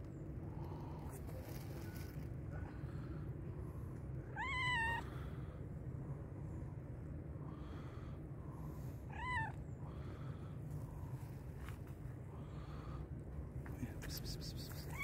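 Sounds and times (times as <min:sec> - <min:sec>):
cat meowing: 0:04.3 - 0:05.1, 0:09.1 - 0:09.6.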